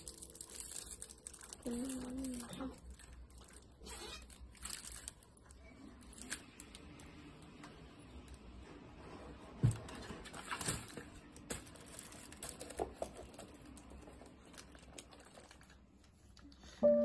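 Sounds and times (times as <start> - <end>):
packaging crinkling and knocks: 0.0 - 5.4, 9.6 - 15.8
music: 16.8 - 17.0.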